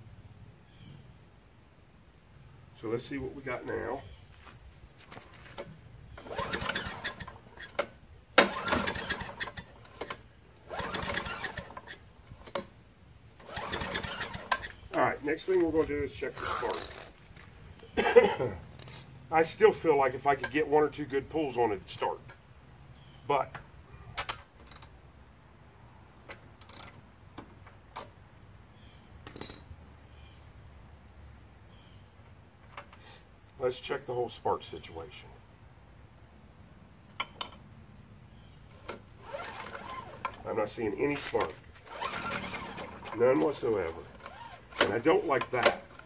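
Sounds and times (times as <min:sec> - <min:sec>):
recoil starter pull: 0:05.6 - 0:12.7, 0:13.4 - 0:14.9, 0:38.7 - 0:40.5, 0:41.2 - 0:46.0
engine turning over: 0:06.1 - 0:07.5, 0:08.4 - 0:12.6, 0:13.4 - 0:14.8, 0:38.7 - 0:40.5, 0:41.2 - 0:46.0.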